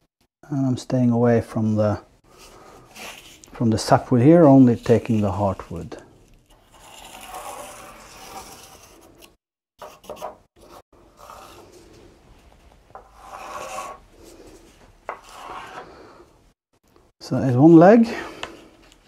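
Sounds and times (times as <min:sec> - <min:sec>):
marking stick scratching on wood: 0:06.6 - 0:11.9, 0:12.9 - 0:14.1, 0:15.1 - 0:15.9.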